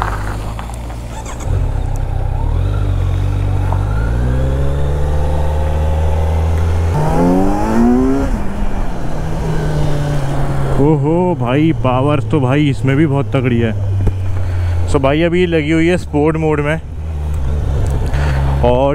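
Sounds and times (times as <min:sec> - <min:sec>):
motorcycle engine accelerating: 0:00.0 - 0:15.2, 0:16.8 - 0:18.9.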